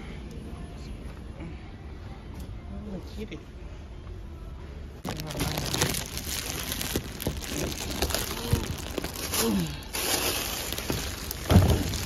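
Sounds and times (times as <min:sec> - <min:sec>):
plastic wrapping crinkling: 0:05.0 - 0:12.0.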